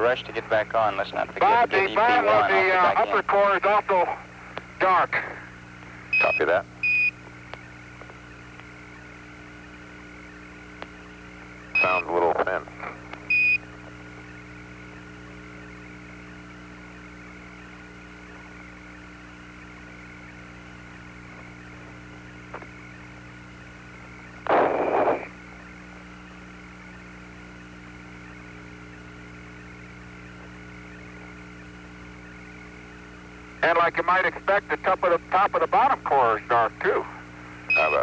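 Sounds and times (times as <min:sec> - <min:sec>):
radio voice: 0:00.0 - 0:05.5, 0:06.2 - 0:06.7, 0:11.8 - 0:13.2, 0:24.5 - 0:25.4, 0:33.6 - 0:38.0
constant tonal hum: 0:00.0 - 0:38.0
radio hiss: 0:00.0 - 0:38.0.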